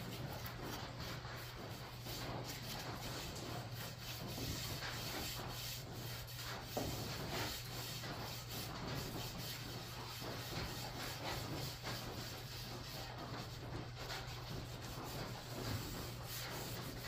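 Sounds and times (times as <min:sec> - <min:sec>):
hand rubbing wood: 0:00.0 - 0:17.0.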